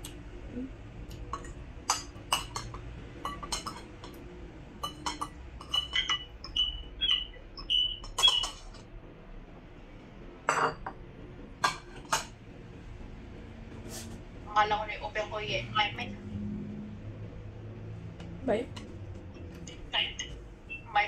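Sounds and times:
bowls clattering as stacked: 1.4 - 4.2
cutlery scraping ceramic bowls: 1.4 - 4.2, 4.8 - 6.6, 8.0 - 8.8, 10.5 - 10.9, 11.6 - 12.3.

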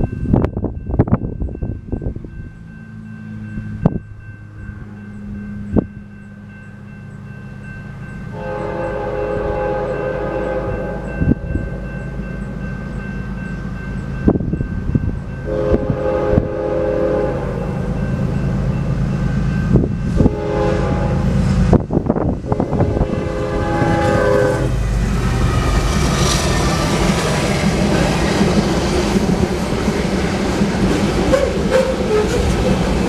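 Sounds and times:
crossing bell ringing: 0.0 - 33.0
locomotive engine rumble: 0.0 - 33.0
train air horn blasts: 8.3 - 11.8, 15.5 - 17.8, 20.1 - 21.4, 22.4 - 24.8, 31.3 - 32.5.

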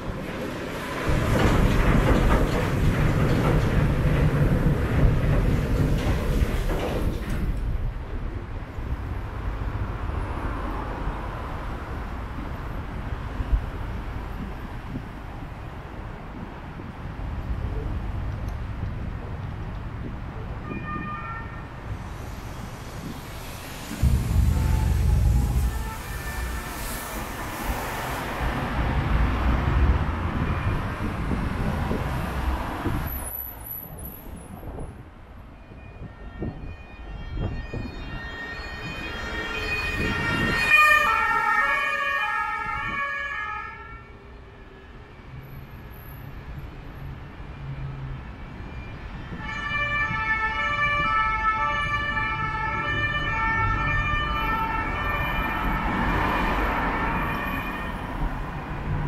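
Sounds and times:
heavy traffic rumble: 0.0 - 59.0
two-tone emergency siren: 35.7 - 44.2, 48.7 - 58.3.

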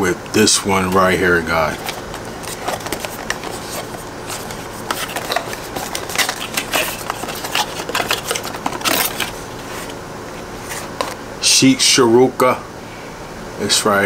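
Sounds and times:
cardboard box crinkling and clicking: 1.7 - 10.0.

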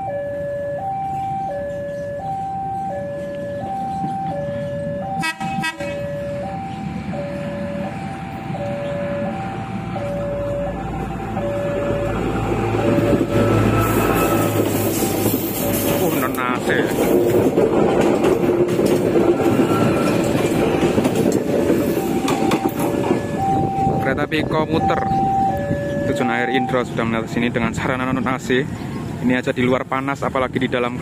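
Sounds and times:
level crossing two-tone alarm: 0.0 - 14.5, 21.9 - 26.8
diesel railcar engine rumble: 0.0 - 31.0
train wheel noise: 3.2 - 30.0.

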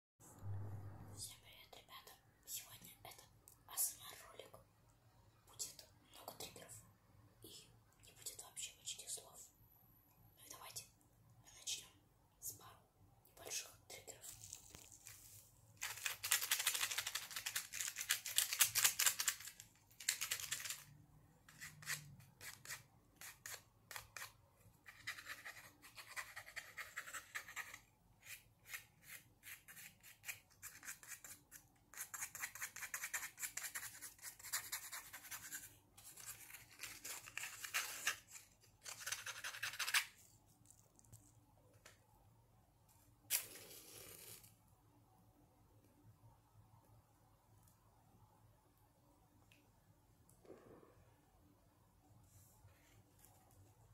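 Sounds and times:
scratching and rapid clicking: 15.8 - 20.9.

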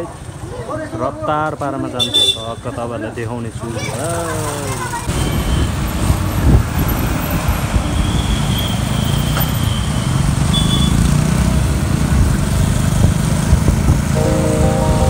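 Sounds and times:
traffic noise: 0.0 - 15.0
motorcycle engines: 2.4 - 15.0
wind rumble on microphone: 5.3 - 8.0, 12.2 - 14.2.

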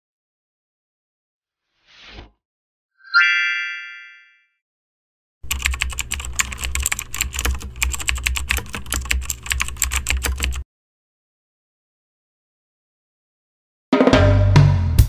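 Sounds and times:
keyboard key clicks: 5.5 - 10.6.

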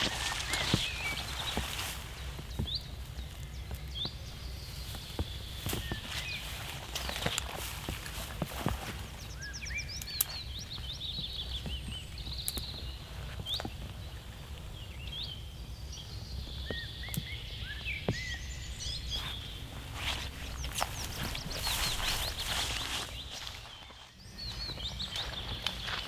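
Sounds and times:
twigs snapping: 0.0 - 14.7, 19.2 - 24.1
footsteps rustling through undergrowth: 0.0 - 15.2, 16.5 - 26.0
songbirds chirping: 0.0 - 26.0.

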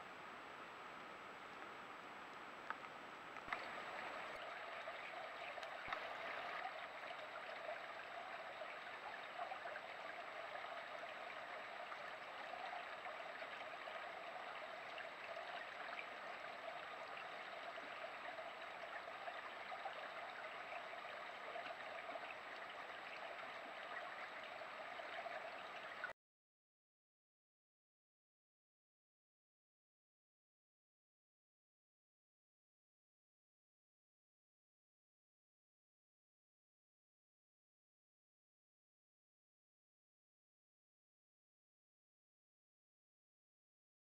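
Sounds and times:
running water rushing: 3.4 - 26.1.

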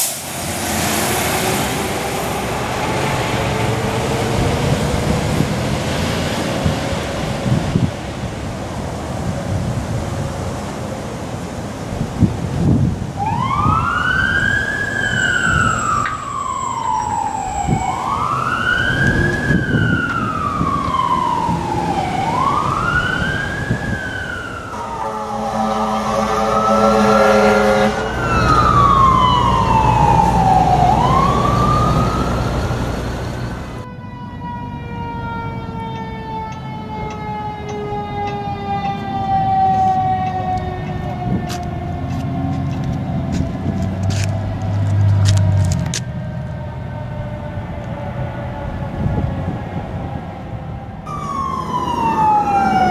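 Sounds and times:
fire truck sirens wailing: 0.0 - 52.9
truck engine and road noise: 0.0 - 52.9
multi-tone air horn blast: 24.7 - 28.7.

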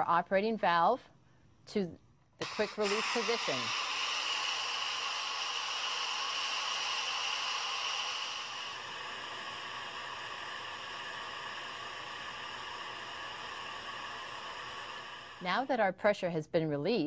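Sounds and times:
steam hissing from pressure cooker: 2.4 - 15.8.

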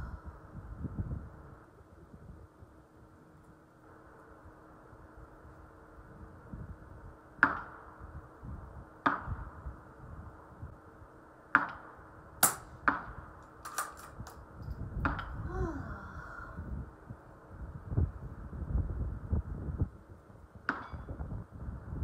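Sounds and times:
suppressed rifle shots: 11.6 - 14.0.

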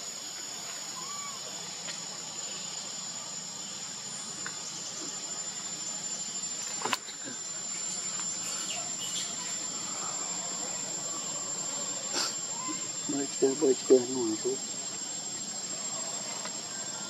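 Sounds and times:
constant hiss: 0.0 - 17.0
insect chorus: 0.0 - 17.0.

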